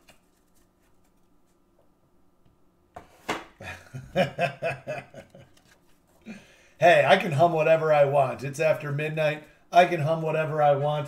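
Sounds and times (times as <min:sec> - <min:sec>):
man laughing: 0:03.6 - 0:05.6.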